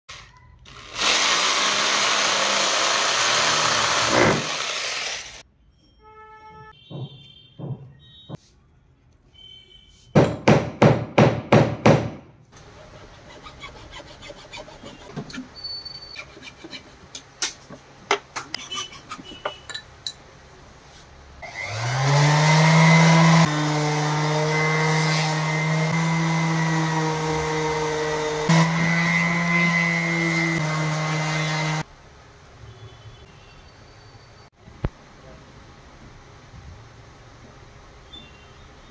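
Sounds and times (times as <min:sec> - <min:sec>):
hand saw cutting wood: 0:00.8 - 0:05.4, 0:12.6 - 0:15.5, 0:16.1 - 0:17.0
electric palm sander humming: 0:21.5 - 0:31.8.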